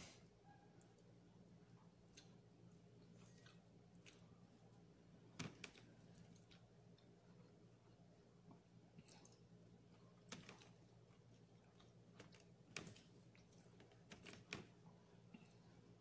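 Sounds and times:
mouth clicks and smacks chewing: 2.0s - 4.4s, 8.5s - 13.8s.

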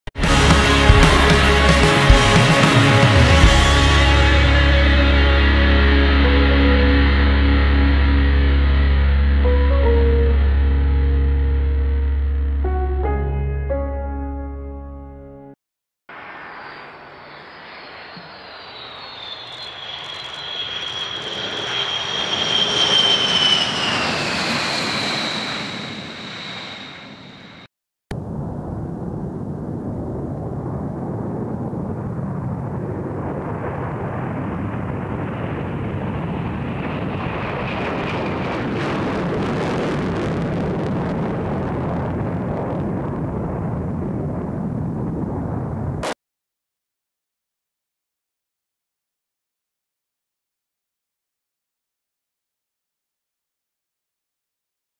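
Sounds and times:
jet roar on takeoff: 0.1s - 6.8s, 16.1s - 27.7s, 32.2s - 46.2s
jet engines whining past: 16.1s - 27.7s, 28.6s - 46.2s.

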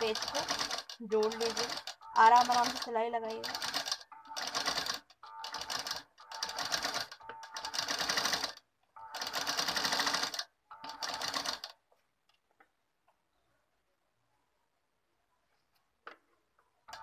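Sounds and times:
sewing machine rattling: 0.0s - 11.8s.

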